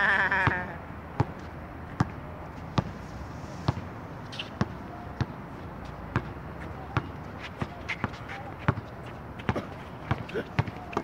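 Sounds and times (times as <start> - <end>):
basketball bouncing on hard court: 8.7 - 11.0.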